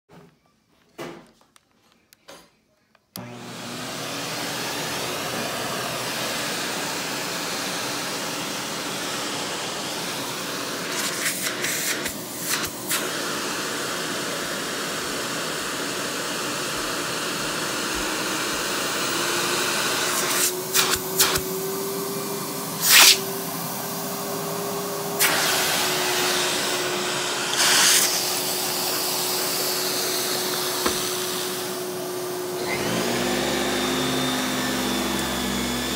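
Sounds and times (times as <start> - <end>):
vacuum cleaner running on carpet: 3.2 - 35.9.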